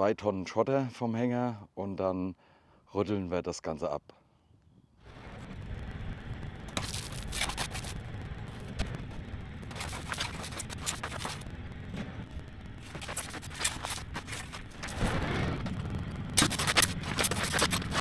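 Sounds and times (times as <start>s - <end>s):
steady low rumble: 5.0s - 18.0s
shovel scraping gravel: 6.7s - 8.0s, 9.7s - 11.4s, 12.8s - 15.4s, 16.4s - 18.0s.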